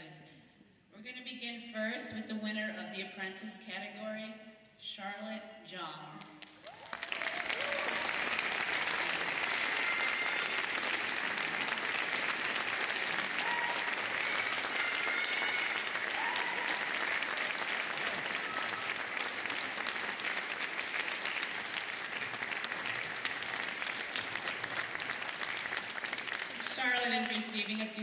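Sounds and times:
audience applauding: 6.4s - 28.0s.

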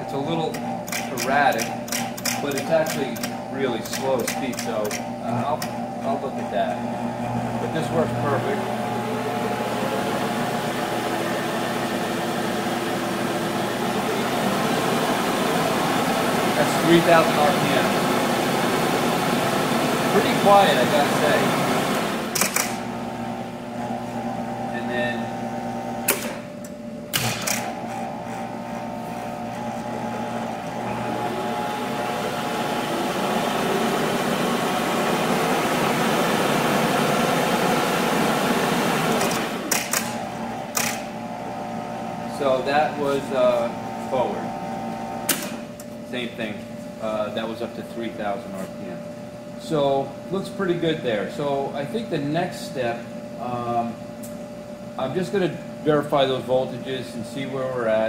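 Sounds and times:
lathe spindle hum: 0.0s - 26.9s, 27.6s - 45.7s.

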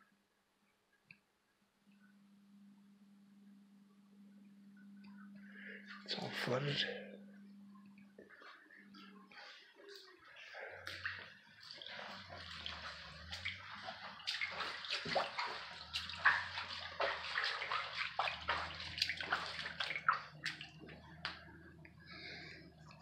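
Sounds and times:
steady low hum: 0.2s - 23.0s
flood water splashing: 10.8s - 21.4s.

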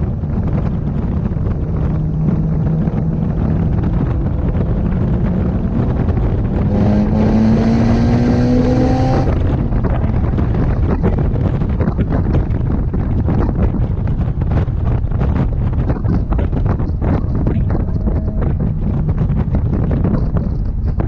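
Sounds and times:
car engine from inside cabin: 0.0s - 10.8s
wind and road noise: 0.0s - 21.0s.

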